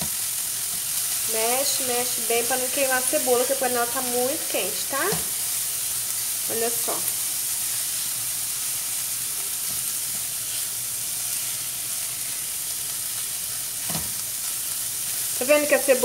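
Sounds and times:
food sizzling in a frying pan: 0.0s - 16.0s.

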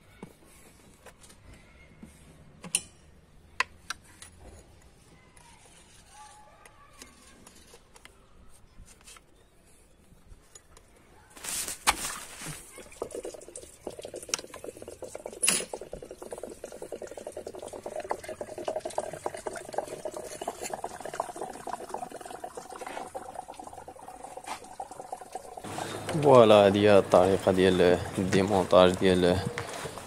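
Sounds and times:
coolant trickling out: 12.0s - 30.0s.

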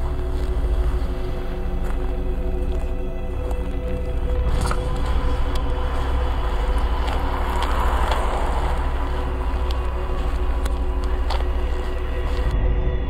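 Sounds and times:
fast-pulsing hum: 0.0s - 13.0s
low rumble: 0.0s - 13.0s.

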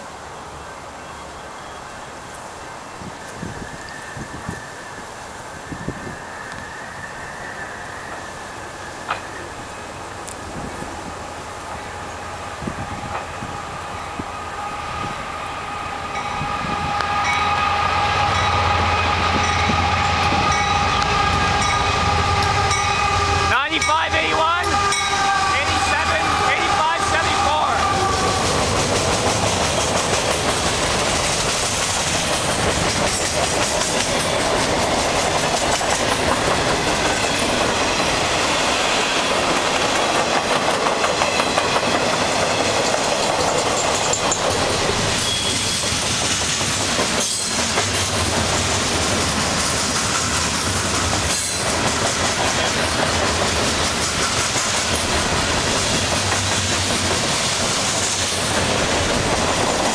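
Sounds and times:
freight train wheels rumbling: 2.2s - 59.9s
wheels clacking over rail joints: 28.0s - 59.9s.

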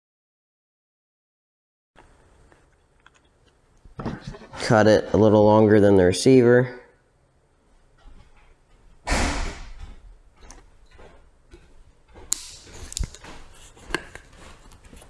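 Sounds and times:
wire cutters snipping: 12.3s - 13.3s.

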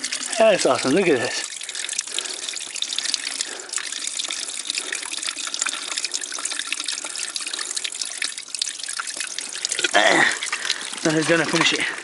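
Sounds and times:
water filling plastic bottle: 0.0s - 12.0s.

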